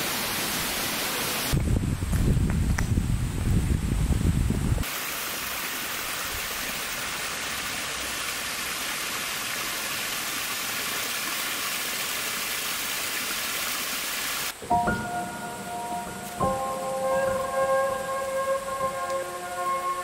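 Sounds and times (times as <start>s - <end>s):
flowing water rushing: 0.0s - 1.6s, 4.8s - 20.0s
held musical tones: 14.5s - 20.0s.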